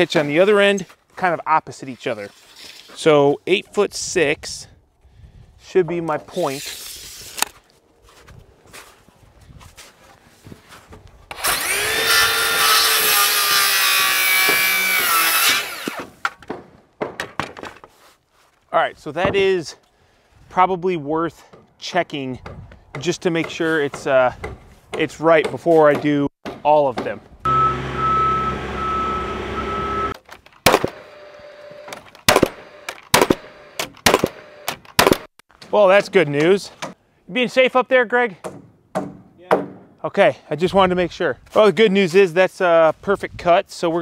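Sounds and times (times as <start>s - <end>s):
circular saw cutting wood: 11.3s - 16.2s, 27.5s - 30.2s, 30.8s - 34.8s
alarm beeping: 27.5s - 30.2s
scissor lift motor running: 27.5s - 30.2s, 31.0s - 31.9s
nailer shots: 30.6s - 31.2s, 31.8s - 35.3s.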